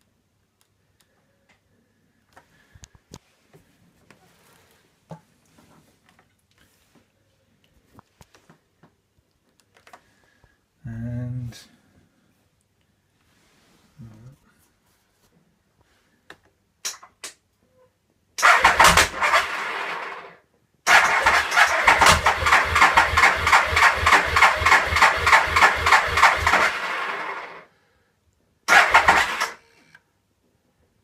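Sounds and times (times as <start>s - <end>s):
motorcycle starter cranking engine: 18.4s - 20.3s, 20.9s - 27.6s, 28.7s - 29.9s.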